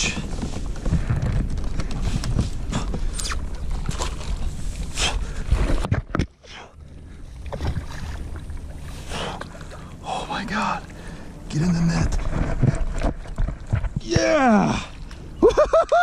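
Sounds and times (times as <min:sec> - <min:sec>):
low rumble: 0:06.5 - 0:15.7.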